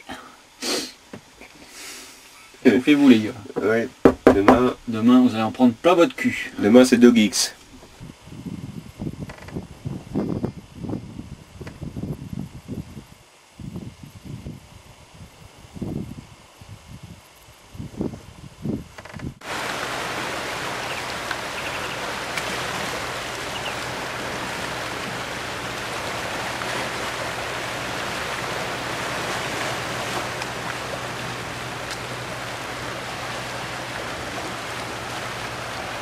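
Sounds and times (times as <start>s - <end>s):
faint low hum: 2.2s - 36.0s
sea water washing around rocks: 19.4s - 36.0s.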